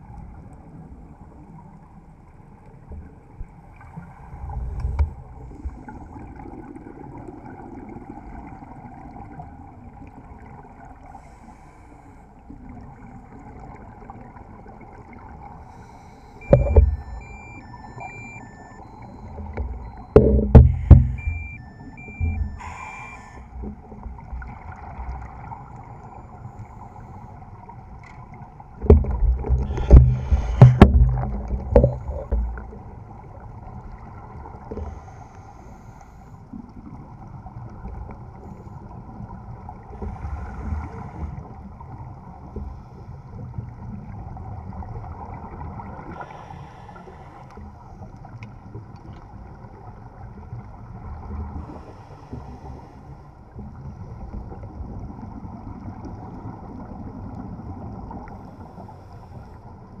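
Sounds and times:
muffled underwater rumble: 0.0 - 60.0
loud low thumps: 20.2 - 21.6.

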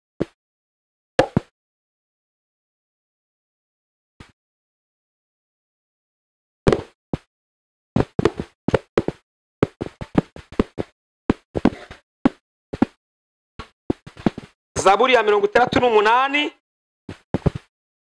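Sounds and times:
microphone knocking and rubbing: 8.0 - 12.0, 13.6 - 14.9, 17.1 - 17.7.

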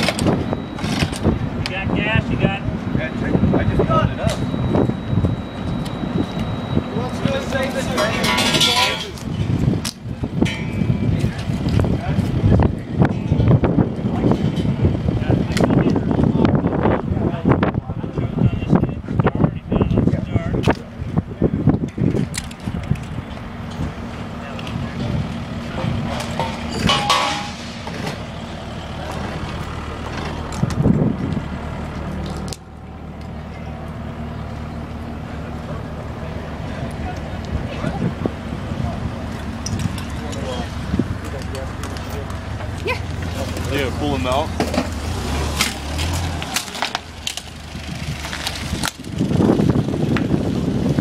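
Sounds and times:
heavy equipment engine running: 0.0 - 51.0
sharp clanks and knocks: 7.8 - 9.3, 9.9 - 11.5, 25.8 - 28.3.

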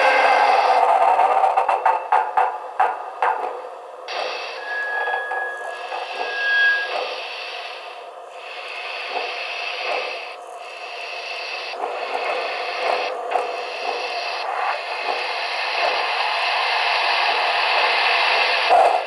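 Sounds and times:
model locomotive steam hissing: 4.1 - 19.0.

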